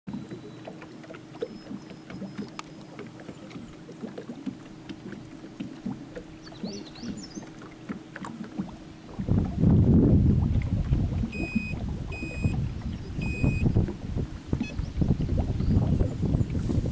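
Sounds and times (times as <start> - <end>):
faint steady hum: 0.1 - 16.9
water lapping against boat hull: 0.1 - 16.9
wind buffeting microphone: 8.6 - 16.9.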